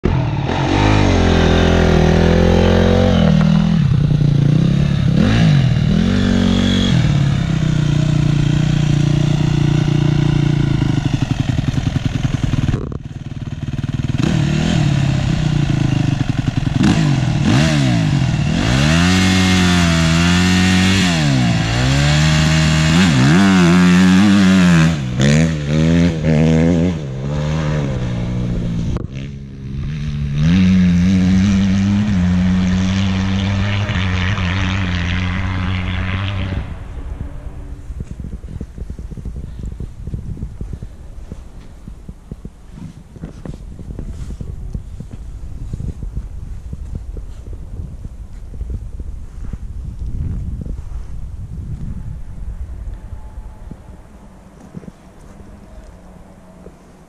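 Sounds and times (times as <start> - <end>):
motocross engine revving: 0.0 - 41.0.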